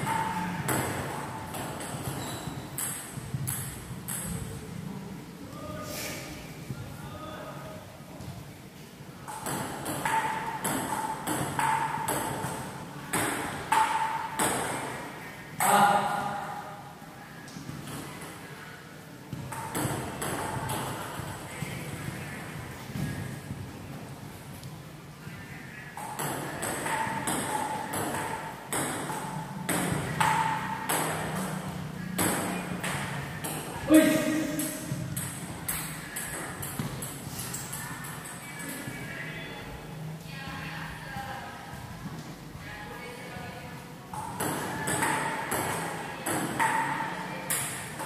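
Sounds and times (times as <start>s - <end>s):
ping pong ball clicking on paddles: 0.0s - 4.5s, 9.2s - 15.0s, 19.3s - 21.4s, 26.0s - 33.8s, 34.5s - 38.8s, 44.1s - 48.0s.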